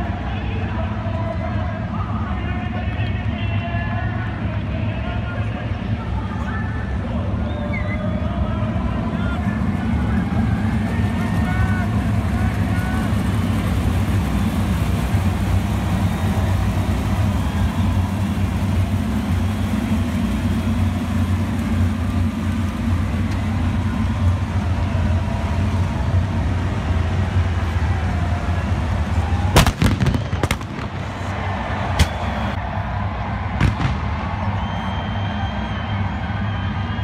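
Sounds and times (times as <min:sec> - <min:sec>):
race car engines rumbling: 0:00.0 - 0:37.0
firework bangs: 0:29.5 - 0:32.6, 0:33.5 - 0:34.7.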